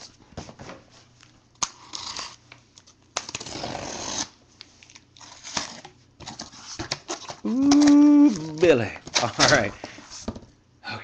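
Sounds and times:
knife slitting packing tape: 0:01.6 - 0:02.4, 0:03.2 - 0:04.4.

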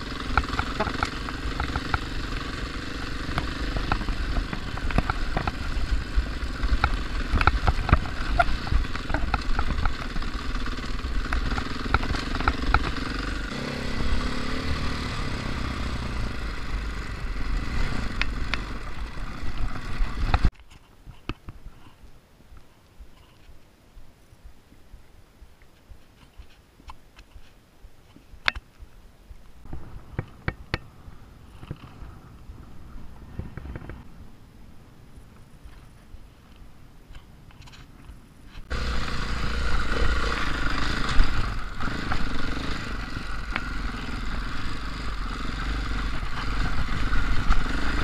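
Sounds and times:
dirt bike engine running: 0:00.0 - 0:20.5, 0:38.7 - 0:48.0
bike rattling over stones: 0:00.1 - 0:13.4, 0:37.6 - 0:48.0.

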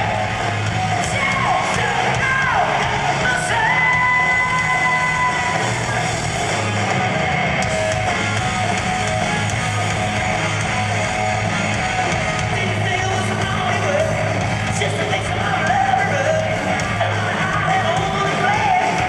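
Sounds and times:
distorted electric guitar: 0:00.0 - 0:19.0
pulsing bass line: 0:00.0 - 0:19.0
male lead vocal: 0:01.0 - 0:05.6, 0:12.4 - 0:19.0.

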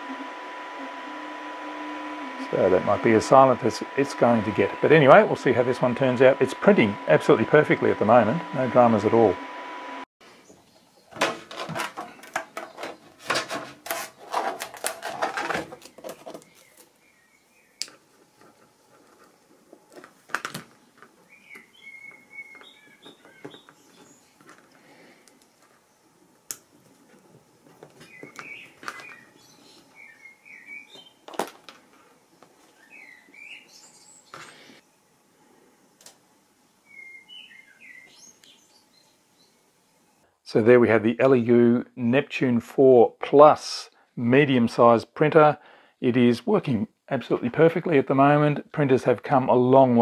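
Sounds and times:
birds chirping: 0:20.7 - 0:24.9, 0:28.0 - 0:31.3, 0:32.7 - 0:34.8, 0:36.7 - 0:39.7.

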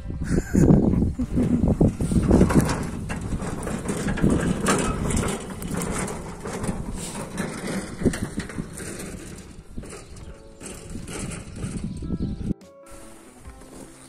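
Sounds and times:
metal hand cart rattling: 0:01.0 - 0:14.0
footsteps crunching in dirt: 0:08.6 - 0:14.0.

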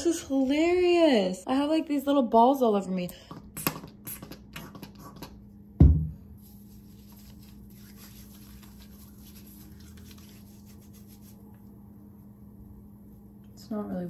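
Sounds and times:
low thump: 0:05.8 - 0:06.2
skin rubbing: 0:06.4 - 0:11.7.

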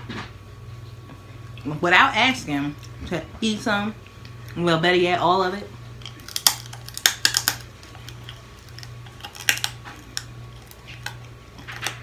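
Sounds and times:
low steady hum: 0:00.0 - 0:12.0
crab shell clicking and cracking: 0:06.0 - 0:12.0.

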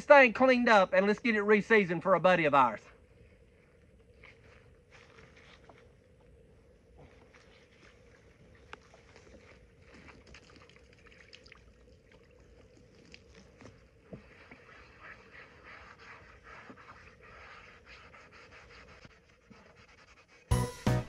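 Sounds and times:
scouring pad scrubbing skillet: 0:14.2 - 0:20.5.

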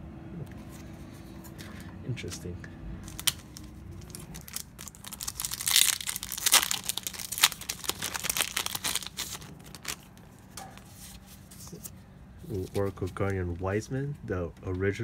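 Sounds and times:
wrapper crinkling and tearing: 0:03.0 - 0:10.3.

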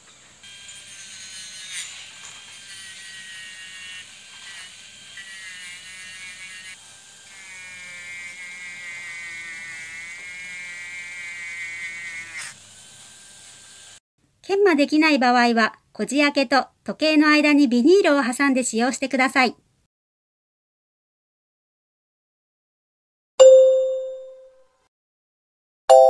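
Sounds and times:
rotary tool grinding metal: 0:00.4 - 0:14.0.

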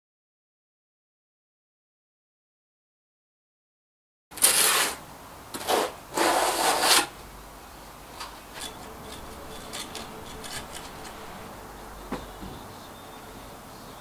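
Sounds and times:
trowel scraping mortar: 0:04.4 - 0:05.0, 0:05.6 - 0:07.2, 0:08.5 - 0:11.5.

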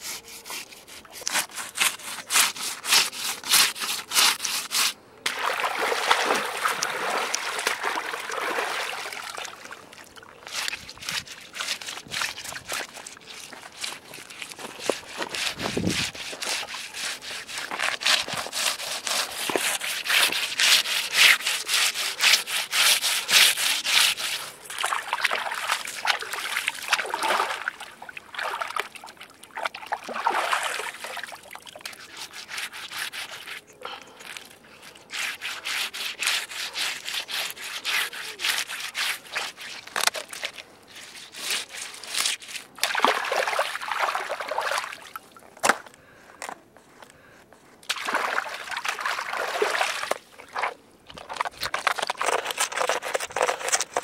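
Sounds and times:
fish scraping against rock: 0:00.0 - 0:05.0, 0:10.5 - 0:24.9, 0:31.8 - 0:33.7, 0:34.3 - 0:42.7, 0:51.1 - 0:54.0
water splashing: 0:05.3 - 0:17.7, 0:23.3 - 0:32.0, 0:42.8 - 0:45.4, 0:47.9 - 0:53.9.

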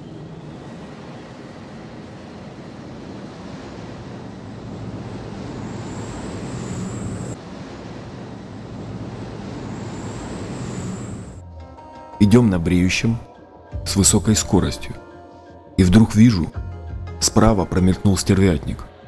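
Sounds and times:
jet engines roaring: 0:00.0 - 0:11.4
high wavering whine: 0:00.0 - 0:13.1.

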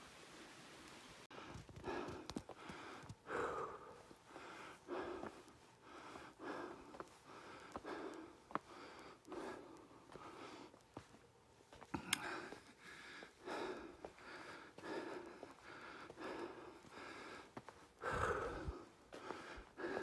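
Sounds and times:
person breathing hard: 0:01.3 - 0:11.2, 0:11.8 - 0:20.0
light clicks: 0:11.8 - 0:12.8.

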